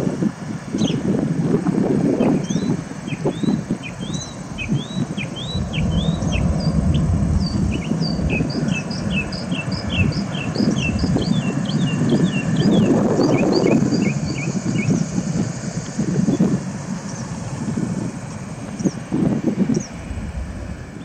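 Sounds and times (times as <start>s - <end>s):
steady low rumble: 0.0s - 21.0s
small birds chirping: 0.7s - 1.1s, 2.1s - 15.2s, 16.0s - 17.4s, 18.6s - 20.2s.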